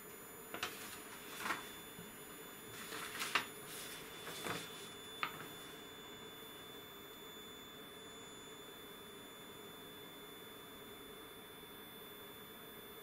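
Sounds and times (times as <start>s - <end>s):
paper sheets rustling: 0.5s - 5.8s.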